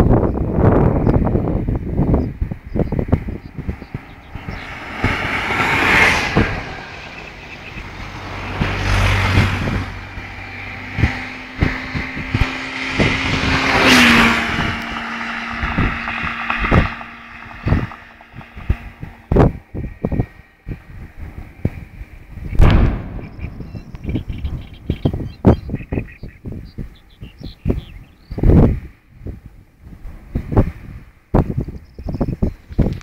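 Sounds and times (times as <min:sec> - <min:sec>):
surging rumbles: 0:00.0 - 0:33.0
distant explosions: 0:22.5 - 0:27.1.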